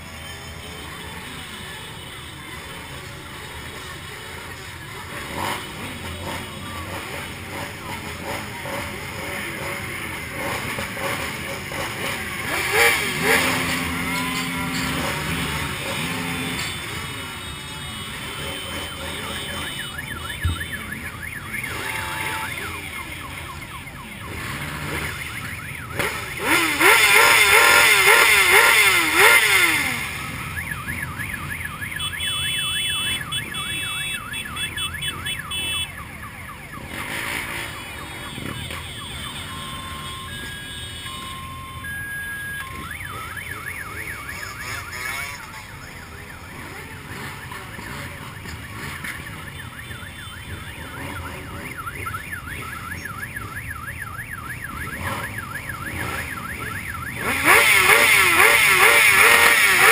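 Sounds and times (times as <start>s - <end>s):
motorcycle engines running: 0.0s - 59.9s
warbling siren wail: 18.7s - 59.9s
electronic beeps and chirps: 18.8s - 36.1s, 36.7s - 59.9s.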